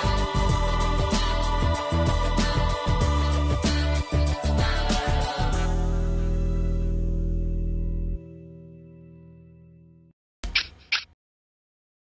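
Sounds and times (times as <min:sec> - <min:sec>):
background music chord: 0:00.0 - 0:10.1
sharp click: 0:10.4 - 0:11.2.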